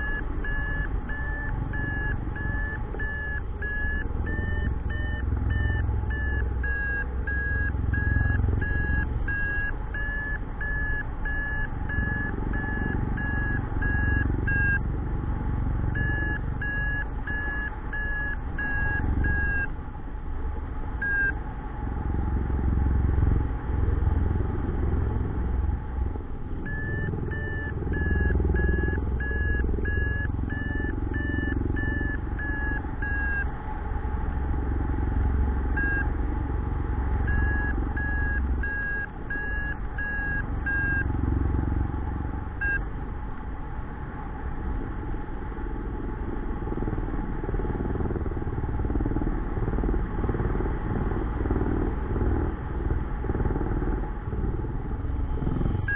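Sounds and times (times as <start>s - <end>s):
variometer short beeps: 0.0s - 14.9s, 16.0s - 19.7s, 21.0s - 21.4s, 26.6s - 33.5s, 35.7s - 36.1s, 37.2s - 41.2s, 42.6s - 42.9s.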